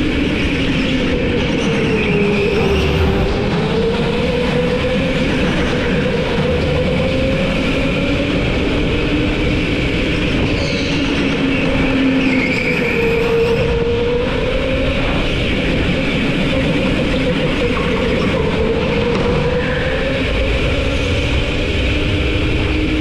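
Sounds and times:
go-kart engine running: 0.0s - 23.0s
rattling rumble: 0.0s - 23.0s.

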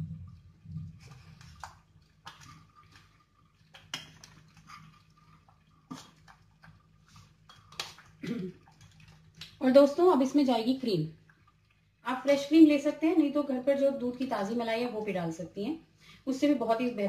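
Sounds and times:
low steady hum: 0.0s - 17.0s
wet plops of simmering dal: 0.3s - 10.1s.

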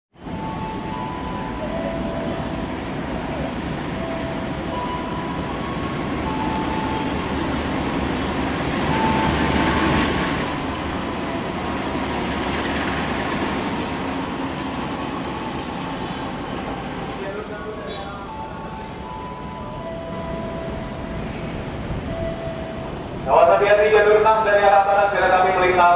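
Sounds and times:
locomotive engine drone: 0.2s - 25.9s
train wheels rolling on rails: 0.2s - 25.9s.

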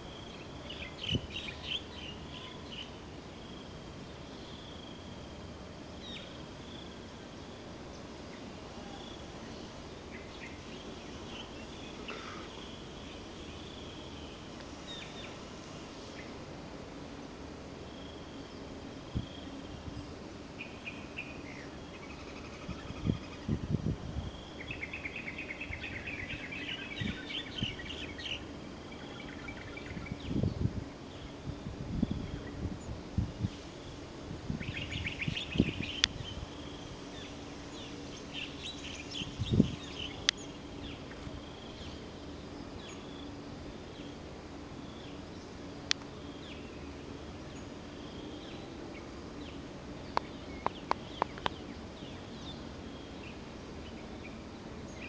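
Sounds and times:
steady background hiss: 0.0s - 55.0s
birds chirping: 44.8s - 55.0s.

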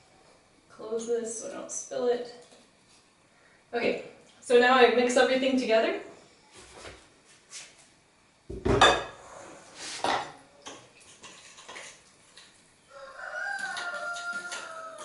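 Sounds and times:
rooster crowing: 12.8s - 15.0s.

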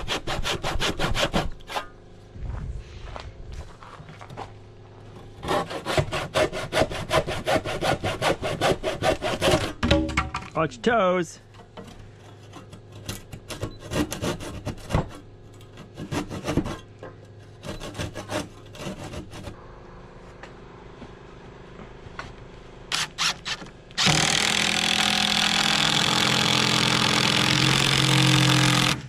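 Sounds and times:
handsaw cutting wood: 0.0s - 1.9s, 5.4s - 9.8s, 12.5s - 16.8s, 17.6s - 19.6s, 22.9s - 29.0s.

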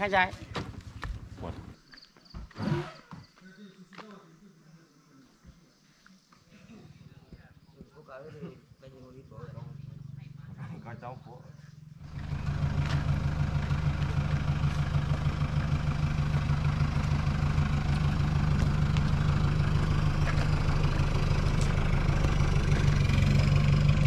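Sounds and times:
engine idling: 0.0s - 1.8s, 8.8s - 24.0s.

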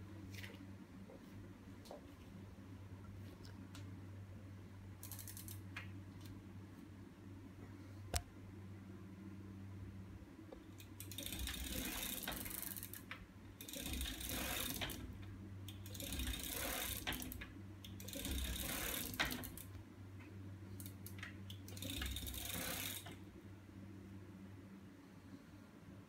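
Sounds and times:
steady low hum: 0.0s - 26.0s
bicycle chain clattering and ticking: 5.0s - 5.6s, 10.9s - 15.1s, 15.7s - 19.7s, 21.6s - 23.2s.

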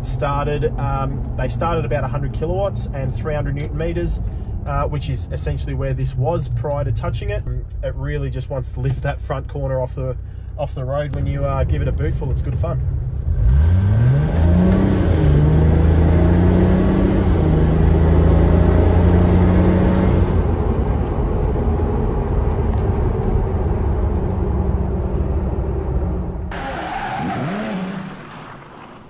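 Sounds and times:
diesel engine accelerating: 11.2s - 29.0s.

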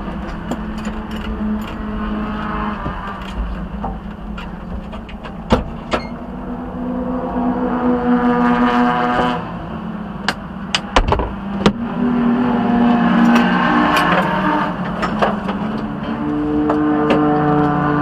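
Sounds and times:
vehicle engines humming: 0.0s - 18.0s.

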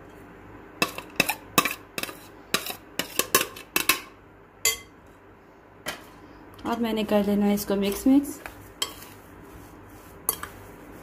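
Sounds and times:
metal spoon clinking on dishes: 0.8s - 5.0s.

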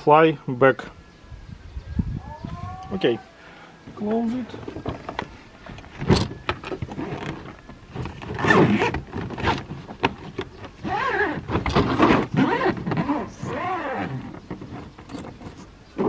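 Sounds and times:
suitcase lid shutting: 4.6s - 16.0s
zipper pulled: 8.3s - 9.6s, 10.8s - 14.8s.

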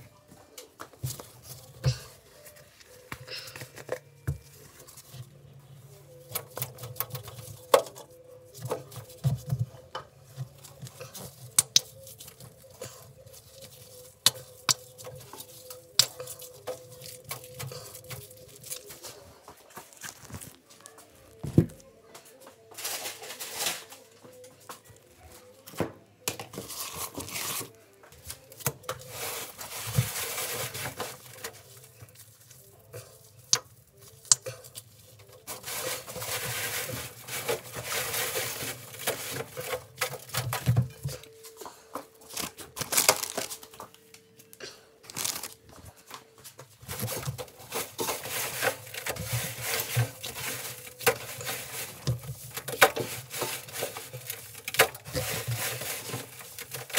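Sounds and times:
gritty powder rustling: 26.5s - 40.3s.

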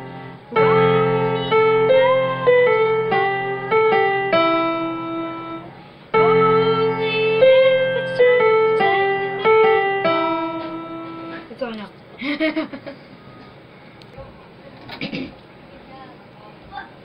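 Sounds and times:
electronic keyboard melody: 0.0s - 11.6s.

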